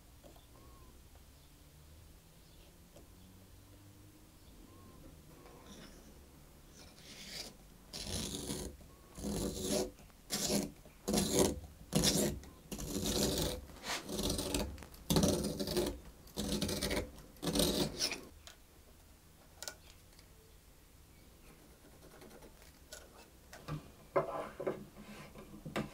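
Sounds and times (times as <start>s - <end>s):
blade rasping on wood: 6.7s - 18.3s.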